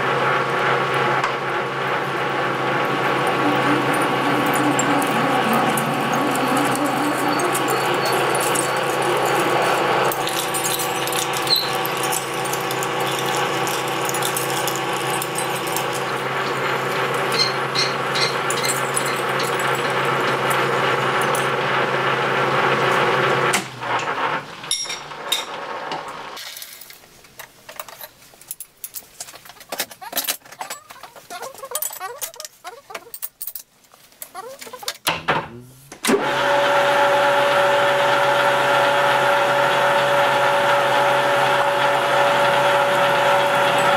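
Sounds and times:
metal lathe running: 1.2 - 25.5, 36.2 - 43.9.

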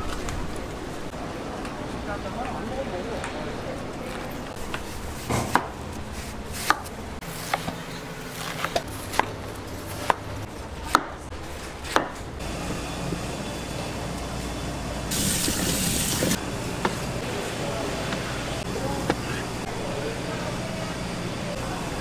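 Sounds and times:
knife chopping on cutting board: 5.3 - 5.7.

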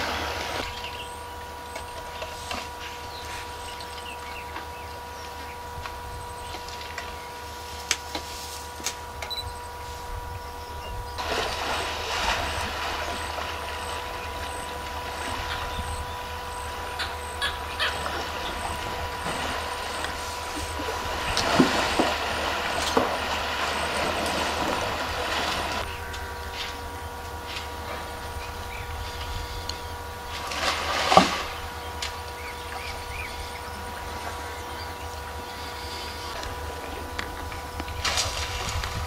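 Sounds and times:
faint steady tone: 9.2 - 38.5
water splashing and rushing: 11.2 - 14.3, 17.9 - 25.9.

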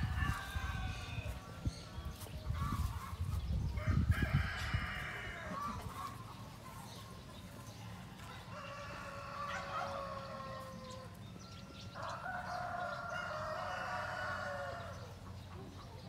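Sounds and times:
rooster crowing: 8.5 - 11.0, 11.8 - 15.0.

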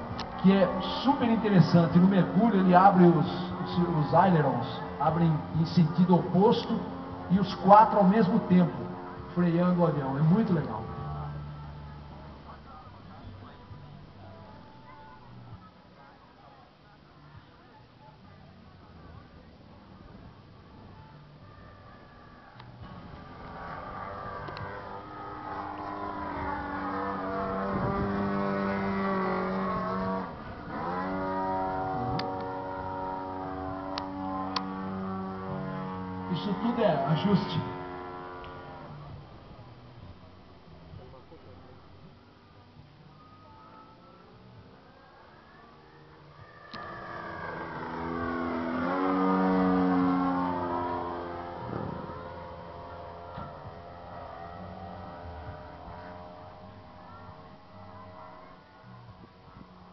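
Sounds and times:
model airplane flying past: 22.8 - 39.2, 46.6 - 58.6.

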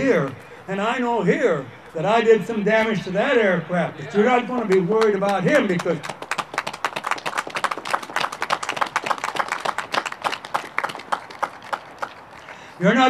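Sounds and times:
audience applauding: 4.5 - 12.5.

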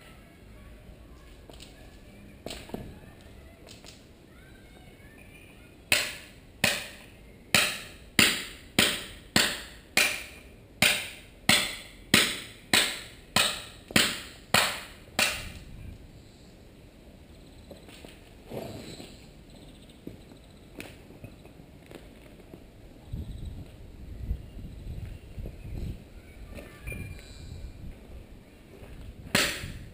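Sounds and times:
hammer striking stone: 5.9 - 15.6, 29.4 - 29.8.

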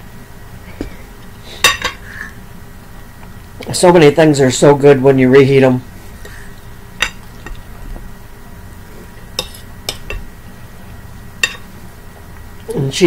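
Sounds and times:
fork clinking against plate: 9.4 - 10.2, 11.4 - 11.7.

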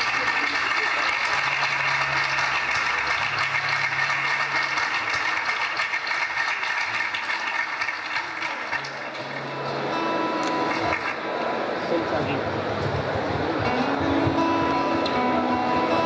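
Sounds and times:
audience clapping: 0.0 - 11.7.

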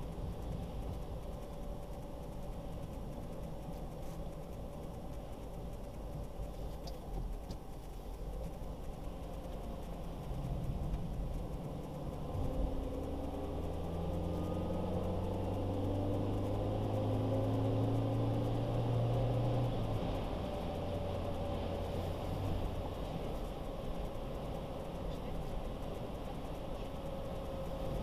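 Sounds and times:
car engine pulling: 0.0 - 28.0
road rumble: 0.0 - 28.0.

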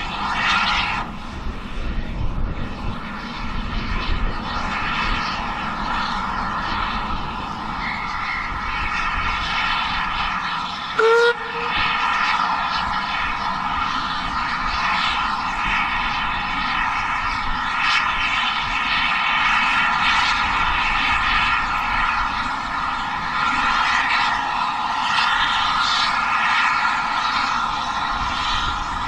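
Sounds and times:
steam locomotive drone: 0.0 - 29.0
steam whistle toot: 11.0 - 12.2.

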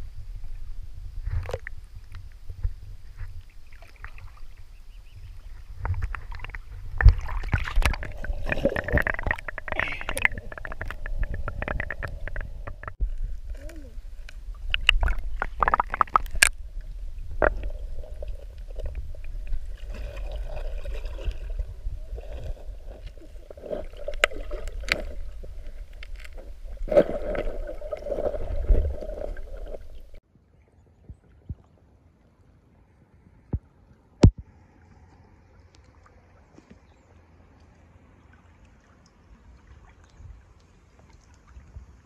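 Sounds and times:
underwater low rumble: 0.0 - 30.2
water bubbling: 3.0 - 30.2
underwater clicks: 5.8 - 13.6, 14.2 - 16.6.

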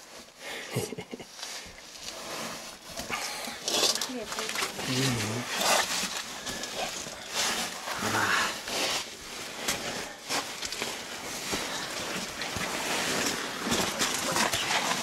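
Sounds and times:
clothing scraping over sand and rock: 1.5 - 15.0
heavy breathing: 3.0 - 3.7, 5.2 - 10.4
person grunting: 8.0 - 8.6.

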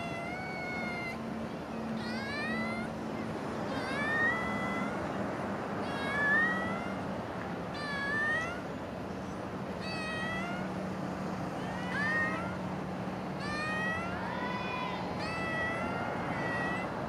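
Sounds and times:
cat meowing: 0.0 - 1.2, 1.9 - 3.0, 3.7 - 5.0, 5.8 - 7.0, 7.7 - 8.7, 9.8 - 10.8, 11.6 - 12.7, 13.4 - 17.0.

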